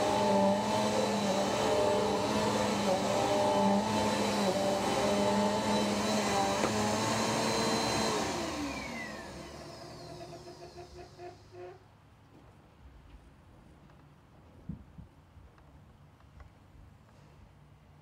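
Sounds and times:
vacuum cleaner running: 0.0s - 11.8s.

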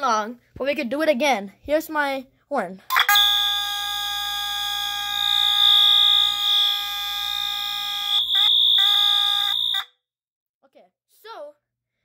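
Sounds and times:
fire alarm horn buzzing: 2.9s - 10.0s.

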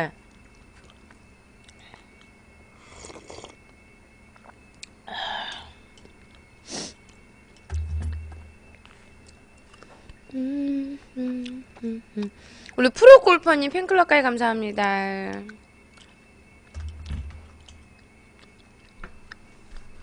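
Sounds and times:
slurping broth: 2.8s - 3.6s
person humming: 10.3s - 12.4s.

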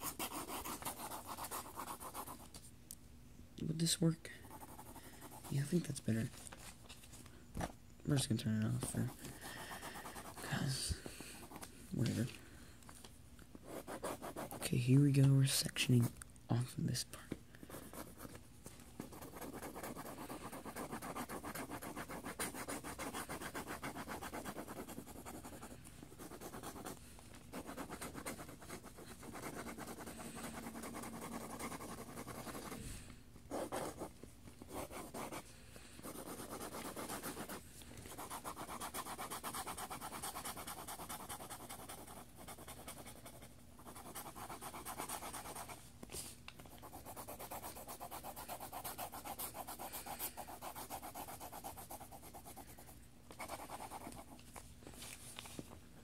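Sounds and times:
pencil scribbling on paper: 0.0s - 2.4s, 4.4s - 5.8s, 8.8s - 10.8s, 13.7s - 14.8s, 19.0s - 32.8s, 33.5s - 35.4s, 36.0s - 45.8s, 46.8s - 54.4s.

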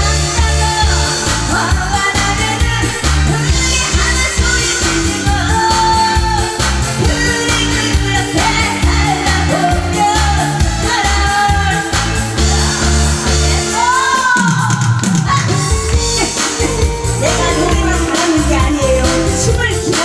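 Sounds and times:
amplified backing track with heavy beat: 0.0s - 20.0s
person singing live: 0.0s - 20.0s.

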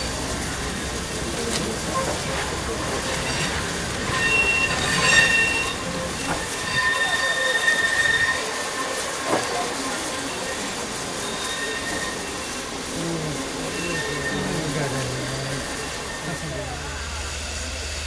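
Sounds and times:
train wheels squealing: 2.0s - 12.9s, 13.6s - 18.0s.

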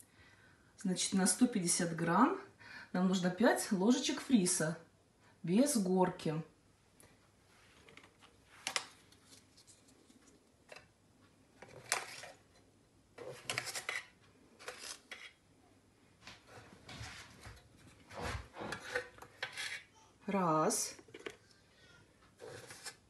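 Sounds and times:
plastic scoop clacking: 11.6s - 12.5s, 13.2s - 15.4s, 22.4s - 23.0s.

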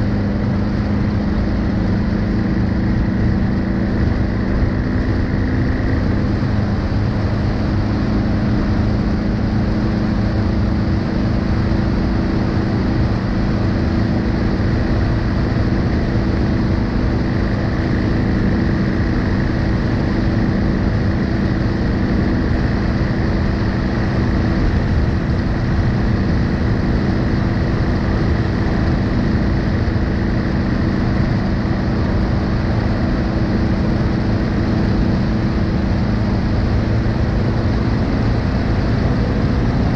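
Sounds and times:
motorcycle engine cruising: 0.0s - 39.9s
road rumble: 0.0s - 39.9s
wind noise: 0.0s - 39.9s.

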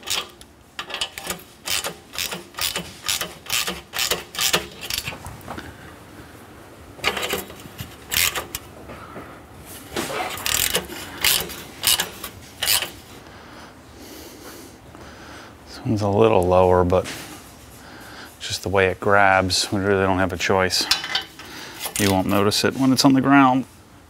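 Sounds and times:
ratchet wrench clicking: 0.0s - 5.1s, 7.0s - 8.6s, 10.4s - 13.0s.

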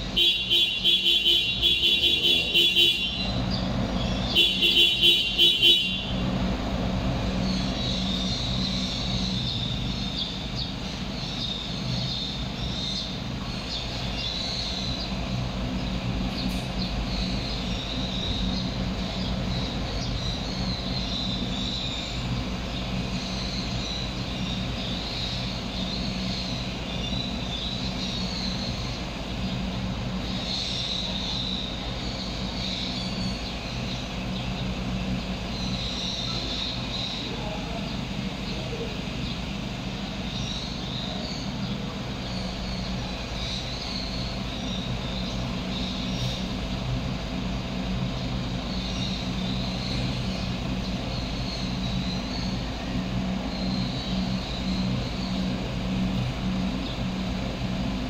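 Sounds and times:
pulsing vehicle horn: 0.0s - 3.5s, 4.2s - 6.4s
street traffic hum: 0.0s - 58.0s.

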